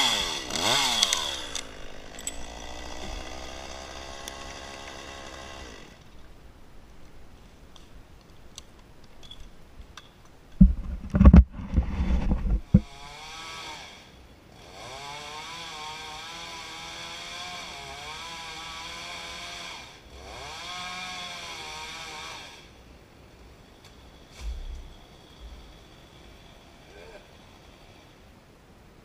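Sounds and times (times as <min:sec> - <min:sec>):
chainsaw running: 0:00.0 - 0:06.1, 0:12.1 - 0:22.7, 0:23.8 - 0:28.1
loud low thumps and rumble: 0:24.4 - 0:25.7.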